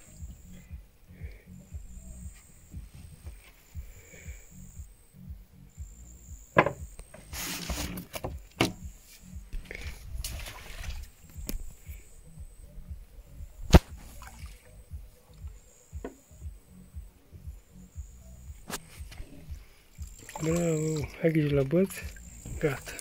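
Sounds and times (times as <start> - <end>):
knocks on wooden pontoon: 6.6 - 6.9
water splashing: 9.6 - 11.8, 13.7 - 15.6, 18.8 - 23.0.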